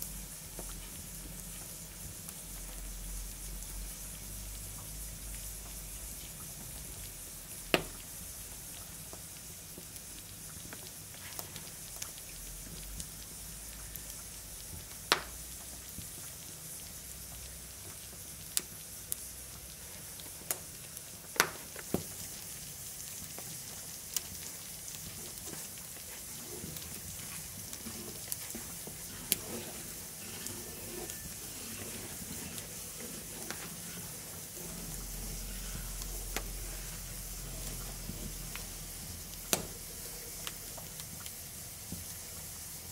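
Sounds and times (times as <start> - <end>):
sauce simmering with sizzling hiss: 0.0 - 42.9
embers popping and crackling: 14.8 - 16.1, 20.2 - 42.1.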